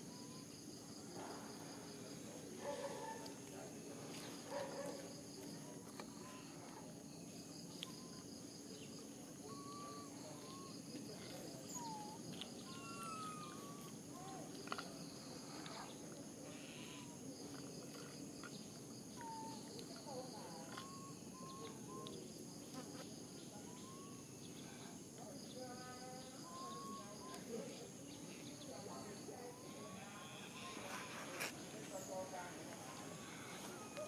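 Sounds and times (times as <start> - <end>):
insects buzzing and chirping: 0.0 - 34.0
whistled calls: 7.8 - 14.4, 19.1 - 22.3, 23.5 - 24.8, 26.0 - 28.8.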